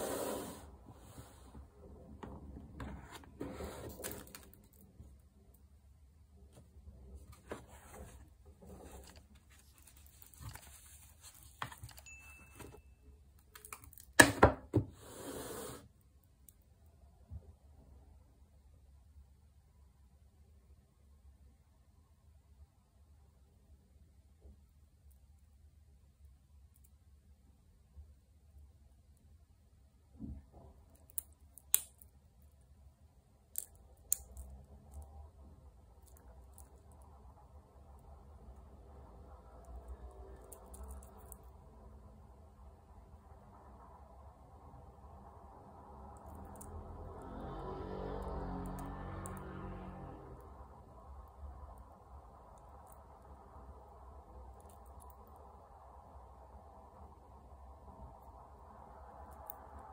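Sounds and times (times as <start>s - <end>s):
soft rustling: 6.5s - 12.6s
scratchy rustling: 7.2s - 12.0s.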